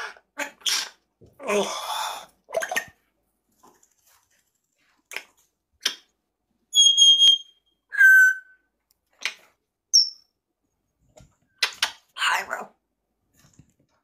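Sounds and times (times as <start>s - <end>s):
parrot whistling: 6.7s - 8.6s.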